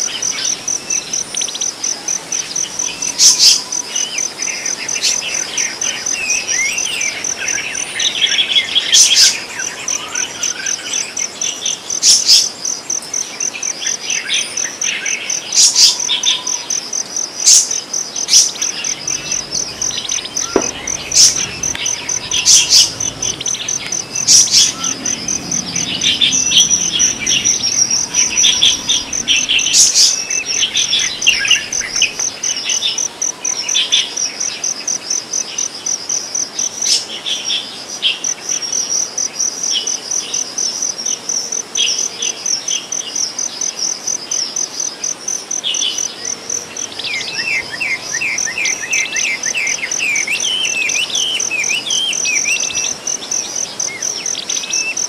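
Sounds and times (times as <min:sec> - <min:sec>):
high insect trill: 0:00.0 - 0:55.0
small birds chirping: 0:13.1 - 0:33.6.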